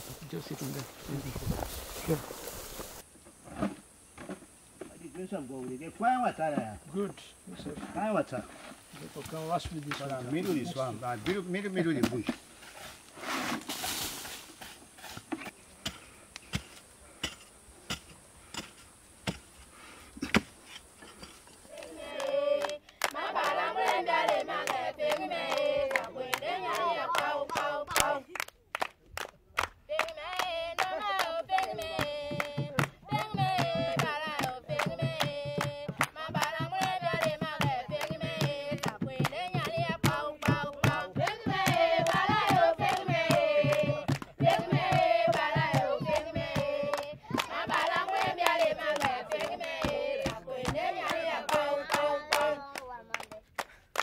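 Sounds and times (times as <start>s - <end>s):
high voices singing together: 21.6s - 28.4s, 29.9s - 53.3s
hand clapping: 21.8s - 54.0s.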